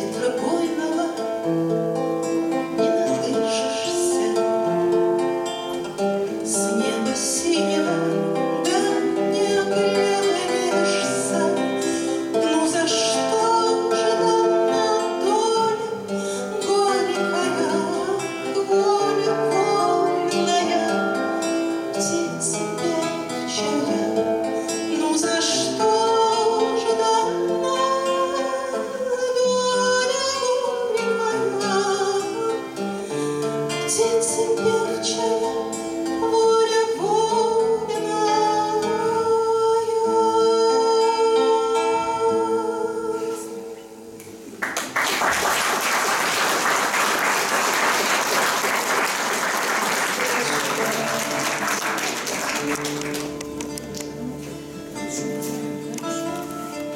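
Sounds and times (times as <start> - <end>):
woman singing: 0.0 - 44.1
strummed nylon-string guitar: 0.0 - 44.9, 49.8 - 56.9
audience applause: 44.6 - 54.0.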